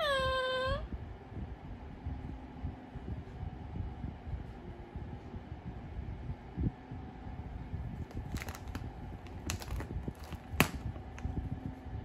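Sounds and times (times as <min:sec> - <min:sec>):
plastic bag crinkling: 0:08.0 - 0:11.2.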